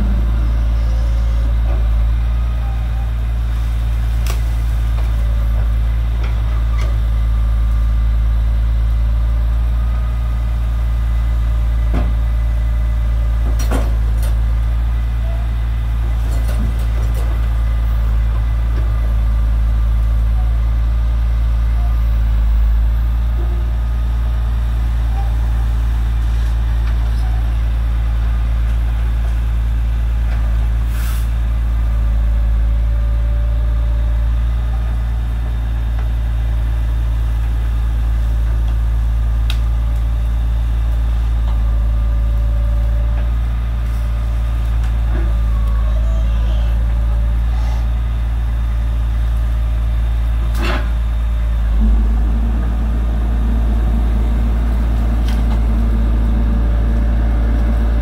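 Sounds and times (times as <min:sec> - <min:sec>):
loader knocking: 0:00.0 - 0:03.2, 0:49.4 - 0:58.0
diesel truck engine running: 0:00.0 - 0:58.0.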